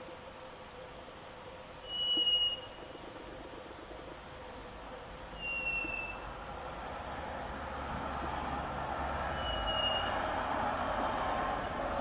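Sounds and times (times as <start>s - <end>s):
whistled call: 1.8s - 2.8s, 5.4s - 6.2s, 9.3s - 10.2s.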